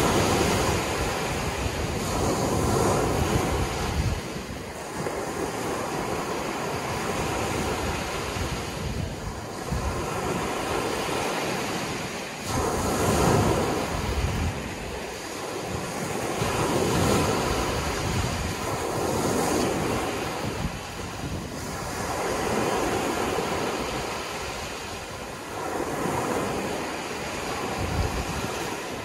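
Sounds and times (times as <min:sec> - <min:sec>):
small waves breaking on shore: 0:00.0 - 0:29.0.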